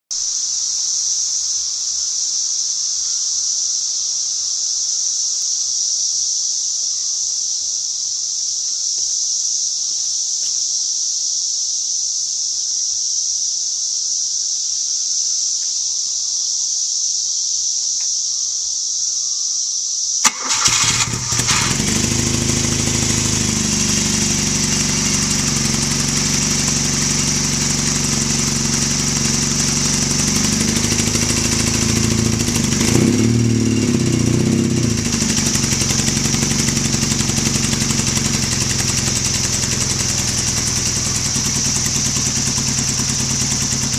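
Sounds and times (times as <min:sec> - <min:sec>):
high-pitched hiss: 0:00.1 - 0:20.3, 0:21.2 - 0:43.9
motorcycle engine starting and idling: 0:20.2 - 0:43.9.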